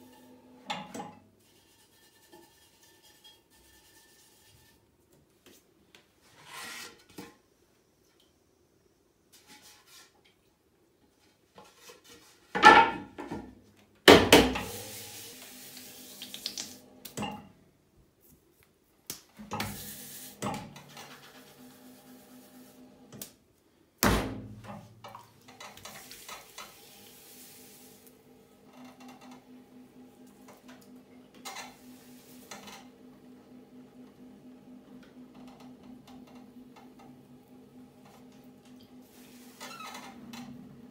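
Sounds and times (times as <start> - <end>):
potter's wheel humming: 25.4 - 40.9.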